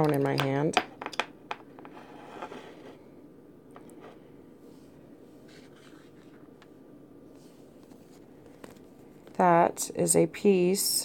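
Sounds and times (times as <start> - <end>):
soft rubbing: 3.9 - 6.6, 7.3 - 9.3.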